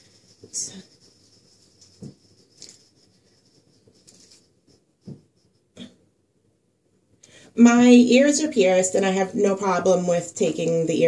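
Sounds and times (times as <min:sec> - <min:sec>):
hand brushing knit sweater: 0:00.0 - 0:05.7.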